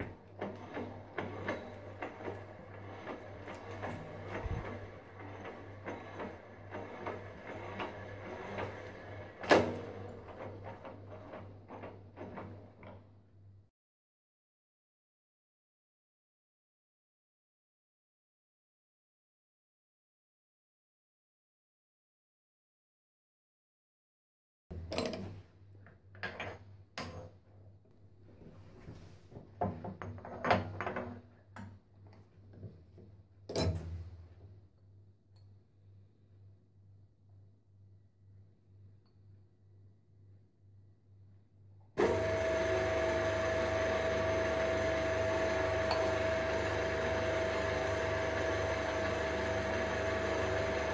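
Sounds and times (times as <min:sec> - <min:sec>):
milling machine humming: 0:00.0 - 0:09.4, 0:42.0 - 0:50.9
metal clanking and scraping: 0:00.3 - 0:09.0.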